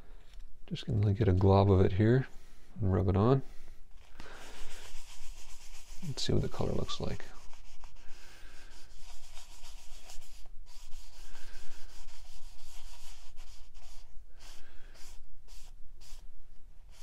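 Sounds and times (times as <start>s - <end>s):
cloth rag rubbing wood: 4.3s - 16.3s.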